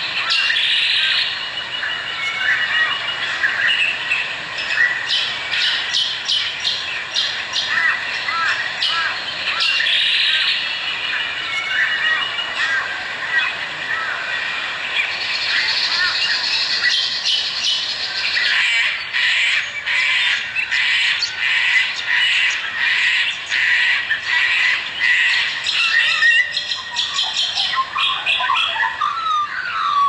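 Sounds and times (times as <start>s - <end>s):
birds chattering: 0.0s - 30.0s
sliding whistled bird calls: 15.0s - 30.0s.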